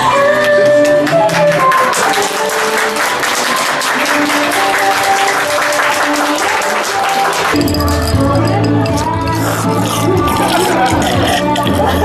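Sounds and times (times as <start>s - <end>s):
crowd clapping: 0.0s - 8.2s
background music: 0.0s - 12.0s.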